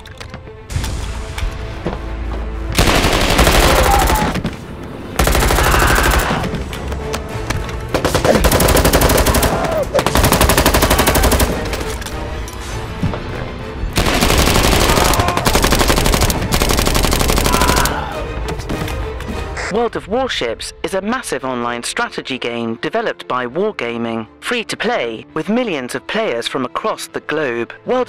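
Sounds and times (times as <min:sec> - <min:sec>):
background music: 0:00.0 - 0:28.0
automatic gunfire bursts: 0:02.8 - 0:04.3, 0:08.0 - 0:11.6, 0:14.0 - 0:17.8.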